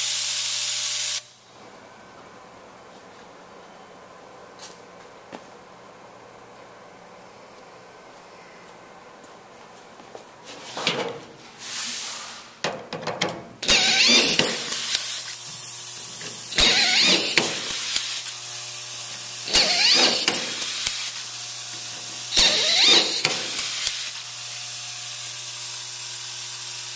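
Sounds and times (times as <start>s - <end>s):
compressed air hissing: 11.5s - 12.6s, 13.6s - 18.3s
air motor whirring: 13.6s - 18.4s, 19.4s - 24.2s
screwdriver click: 22.4s - 24.2s.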